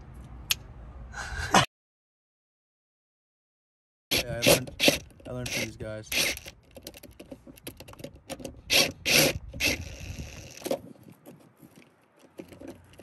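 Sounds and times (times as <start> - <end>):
cordless drill running: 4.1 - 6.5, 8.7 - 10.6
sharp mechanical clicks: 4.1 - 10.8.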